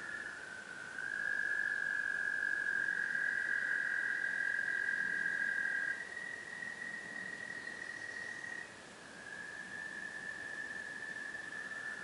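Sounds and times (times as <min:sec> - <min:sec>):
tree frogs calling: 0:00.0 - 0:12.0.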